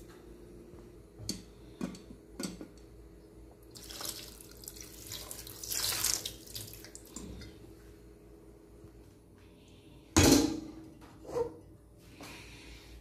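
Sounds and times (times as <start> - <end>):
water pouring into a metal pot: 3.7 - 7.3.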